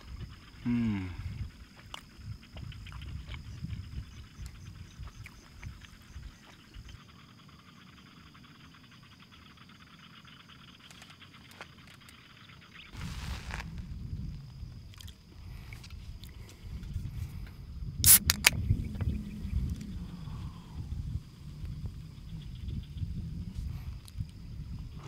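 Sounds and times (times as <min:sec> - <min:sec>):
insect high trill: 0:00.0 - 0:25.0
pulsing insect chirp: 0:00.0 - 0:25.0
small clicks: 0:10.8 - 0:12.2
low rumble: 0:12.9 - 0:25.0.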